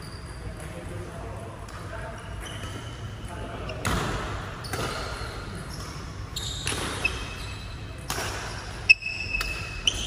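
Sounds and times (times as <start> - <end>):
shoes squeaking on court floor: 0.0 - 10.0
rackets hitting shuttlecock: 3.8 - 7.4, 8.0 - 10.0.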